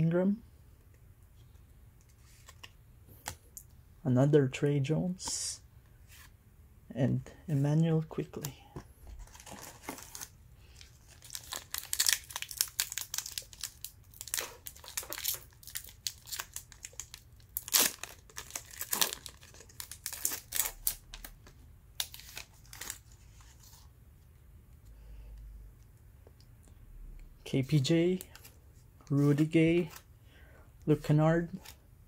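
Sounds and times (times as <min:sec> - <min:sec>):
wrapper tearing and crinkling: 0:09.2 - 0:21.4, 0:22.0 - 0:23.7.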